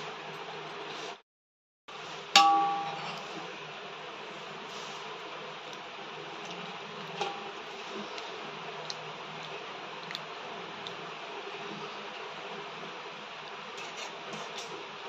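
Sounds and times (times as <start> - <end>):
steady hiss: 3.0 - 15.0.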